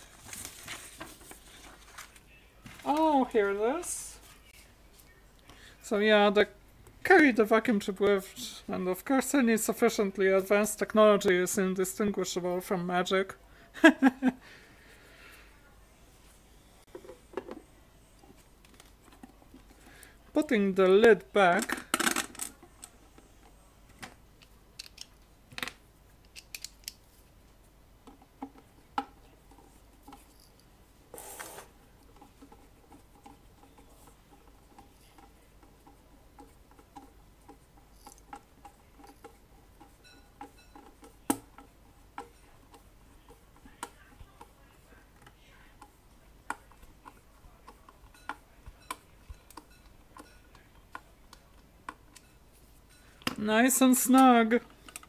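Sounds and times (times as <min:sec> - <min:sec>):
small metal clicks and taps: 0:24.4 - 0:27.0, 0:46.5 - 0:52.4.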